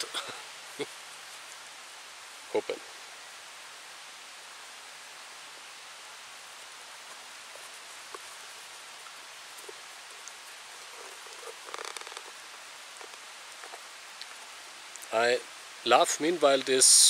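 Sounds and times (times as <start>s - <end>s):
faint background hiss: 0.0s - 17.0s
string rustling as it is knotted: 7.0s - 14.5s.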